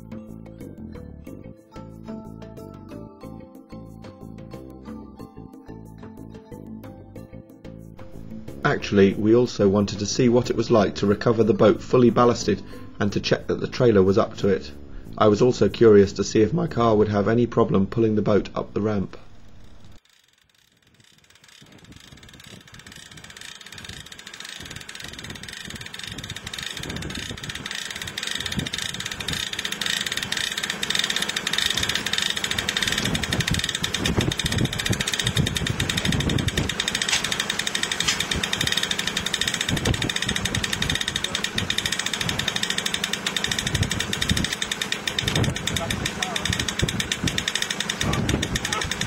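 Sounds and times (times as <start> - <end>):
car engine running: 23.5 - 49.0.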